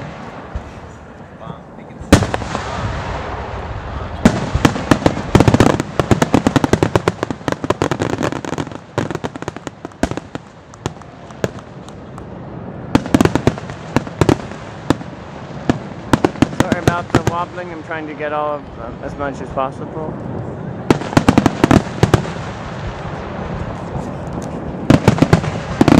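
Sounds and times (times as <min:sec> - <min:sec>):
firework bang: 0:02.0 - 0:12.0, 0:20.8 - 0:23.8, 0:24.8 - 0:25.9
fireworks crackling pops: 0:04.2 - 0:18.2, 0:20.1 - 0:25.9.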